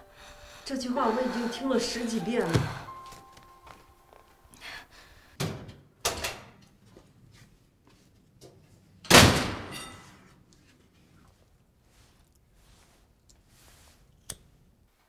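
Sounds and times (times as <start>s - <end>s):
door slamming: 9.1s - 9.7s.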